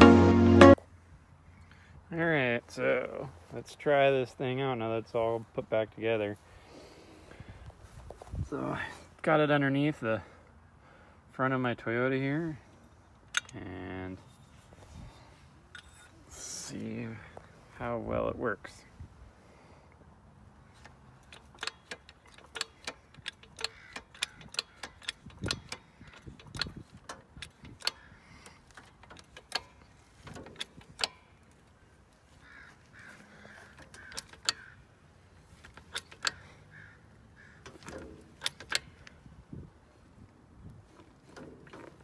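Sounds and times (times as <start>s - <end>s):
floor jack pumping clicks: 20.8s - 31.2s, 33.7s - 34.7s, 35.5s - 36.7s, 37.6s - 39.2s.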